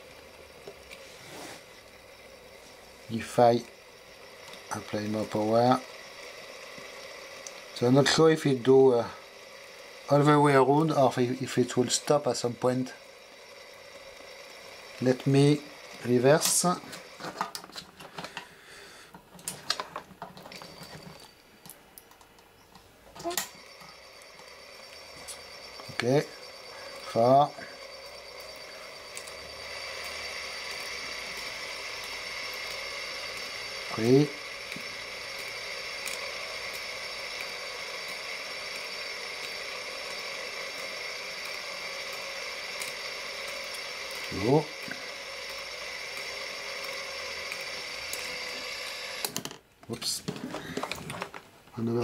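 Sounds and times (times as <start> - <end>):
motor hum: 0.0 - 49.6
gears clicking and ticking: 23.2 - 49.5.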